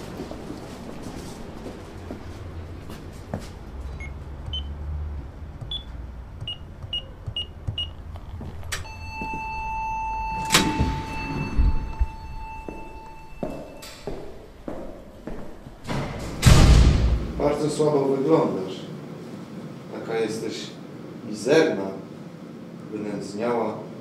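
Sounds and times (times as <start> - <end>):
steady electronic tone: 8.8 - 14.2.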